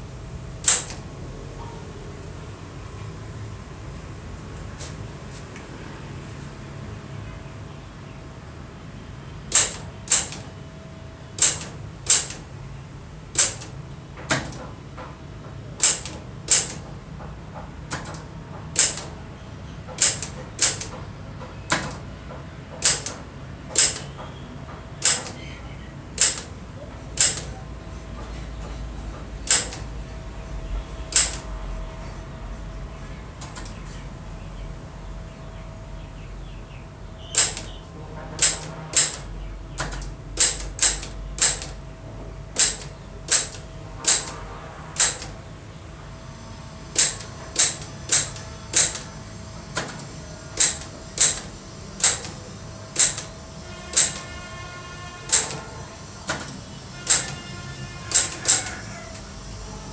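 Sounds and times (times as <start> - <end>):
typewriter keys clacking: 9.5 - 10.4, 20.0 - 21.0, 22.8 - 24.1, 25.0 - 25.4, 26.1 - 26.5, 29.5 - 29.8, 31.1 - 31.4, 37.4 - 37.8, 38.4 - 39.2, 39.8 - 41.8, 42.6 - 44.3, 47.0 - 49.1, 50.6 - 52.4, 53.0 - 53.3, 53.9 - 54.2, 55.3 - 55.6, 56.3 - 57.4, 58.1 - 58.7.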